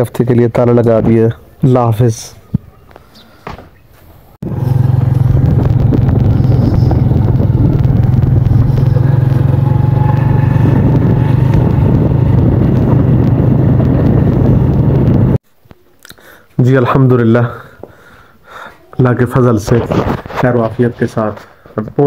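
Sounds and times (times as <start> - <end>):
motorcycle engine running: 4.4 - 15.4
wind rumble on microphone: 4.4 - 15.4.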